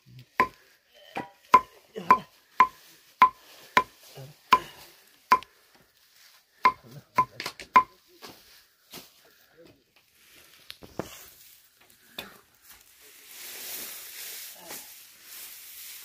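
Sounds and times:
knife chopping dry grass: 0:00.3 - 0:00.6, 0:01.2 - 0:05.5, 0:06.7 - 0:07.9.

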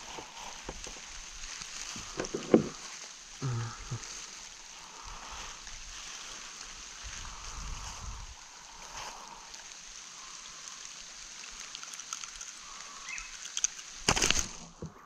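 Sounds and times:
water hissing around a kayak: 0:00.0 - 0:15.0
murmured vocal sounds: 0:02.1 - 0:05.0.

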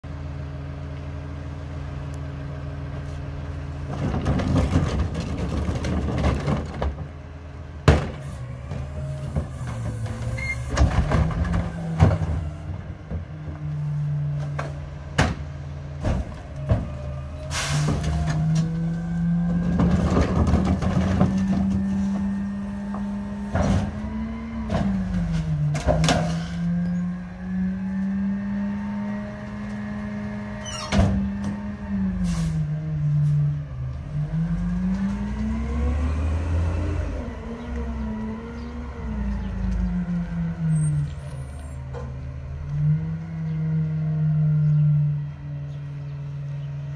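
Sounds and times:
garbage truck diesel engine: 0:00.0 - 0:46.9
trash clattering: 0:03.8 - 0:07.2, 0:07.8 - 0:27.0
cart banging: 0:03.9 - 0:07.1.

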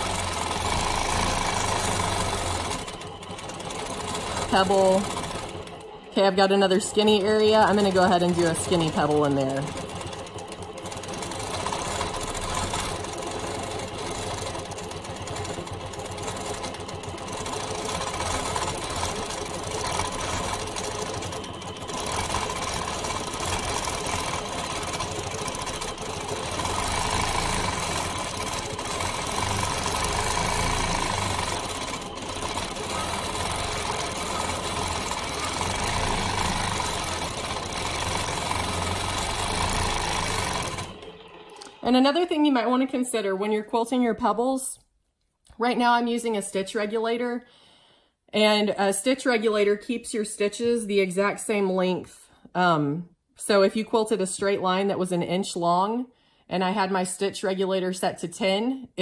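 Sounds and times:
quilting machine stitching: 0:00.0 - 0:42.7.

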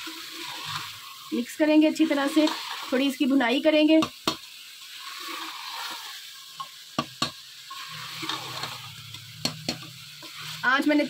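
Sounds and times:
food sizzling in a pot: 0:00.0 - 0:11.0
spoon knocking against pot: 0:07.0 - 0:07.4.

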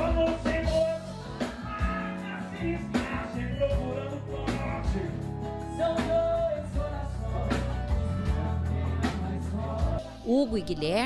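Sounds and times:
bass: 0:00.0 - 0:11.0
drums: 0:00.0 - 0:11.0.

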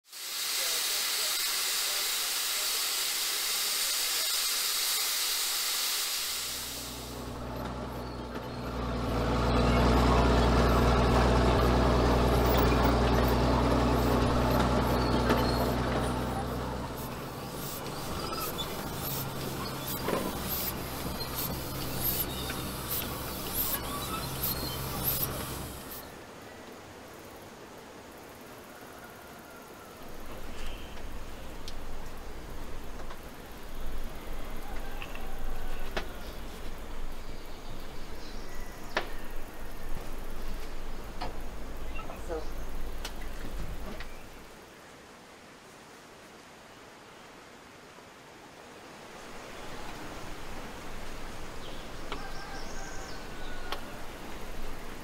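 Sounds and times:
steam hissing: 0:00.0 - 0:26.1
low mechanical hum: 0:00.6 - 0:28.6, 0:29.6 - 0:44.6, 0:49.2 - 0:55.0.

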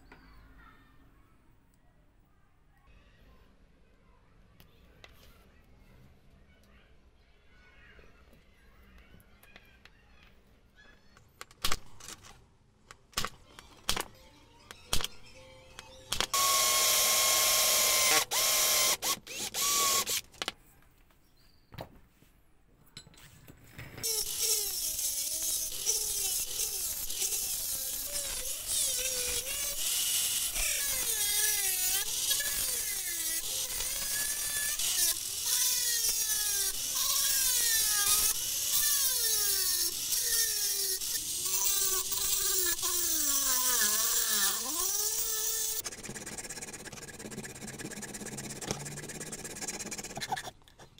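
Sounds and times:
rotary tool cutting metal: 0:16.1 - 0:20.2, 0:24.0 - 0:50.9
electric drill boring through metal: 0:16.2 - 0:20.2, 0:24.0 - 0:50.1.

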